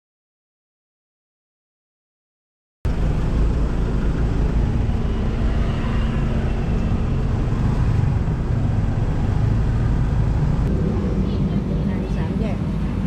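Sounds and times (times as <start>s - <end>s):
low rumble of road traffic: 2.9s - 13.0s.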